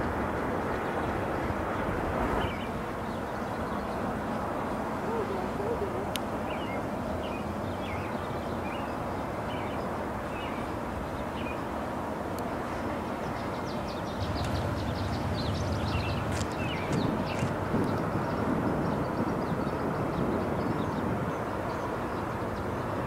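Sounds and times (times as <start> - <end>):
small birds chirping: 5.0 - 11.6, 13.2 - 22.9.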